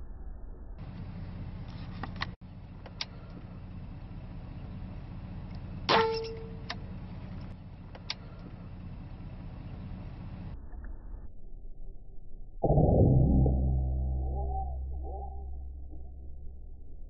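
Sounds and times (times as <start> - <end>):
steady low hum: 0.0 - 17.0
faint clicks: 0.8 - 3.5, 6.6 - 9.2
short metallic ring: 5.9 - 6.7.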